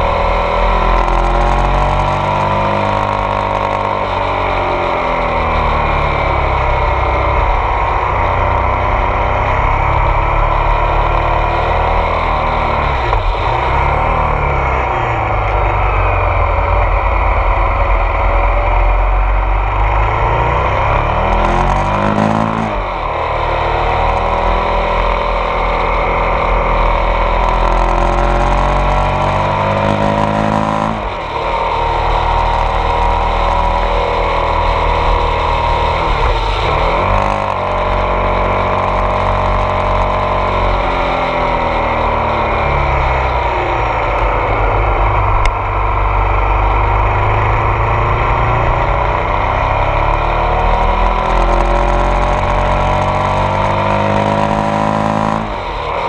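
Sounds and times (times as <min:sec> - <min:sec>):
motorcycle engine: 0:00.0 - 0:56.0.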